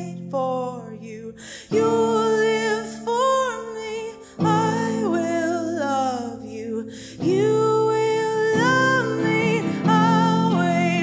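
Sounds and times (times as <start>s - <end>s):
woman singing: 0.0s - 11.0s
strummed electric guitar: 7.2s - 11.0s.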